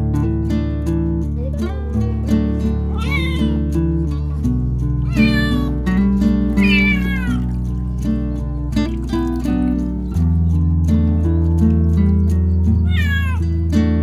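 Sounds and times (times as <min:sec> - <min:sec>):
background music: 0:00.0 - 0:14.0
kitten meowing: 0:02.9 - 0:03.8, 0:05.0 - 0:05.9, 0:06.5 - 0:07.8, 0:12.8 - 0:13.4.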